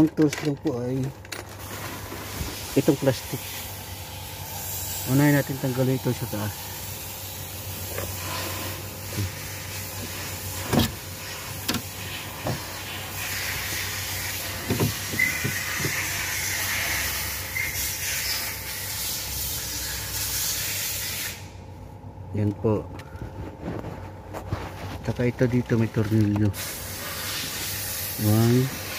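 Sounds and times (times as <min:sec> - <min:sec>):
steady hiss: 0:01.6 - 0:21.6, 0:26.5 - 0:28.9.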